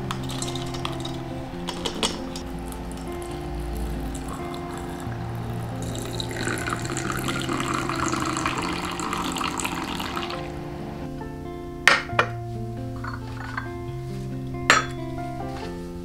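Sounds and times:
water pouring into teapot: 0.0 - 10.8
sharp glass clink: 14.7 - 15.0.

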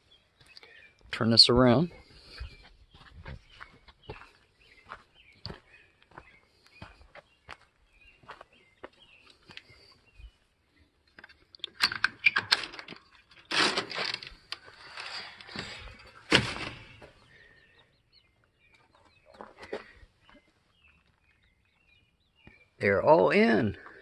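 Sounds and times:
hens clucking and chirping: 1.7 - 12.3, 14.3 - 24.0.

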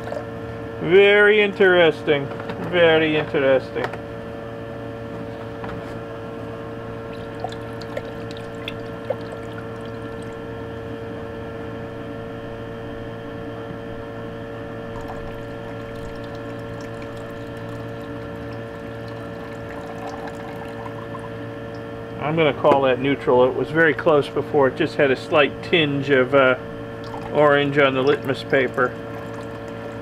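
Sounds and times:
steady electrical hum: 0.0 - 30.0
water pouring from glass beaker: 7.1 - 10.4, 14.9 - 21.3, 27.0 - 27.4, 29.0 - 30.0.

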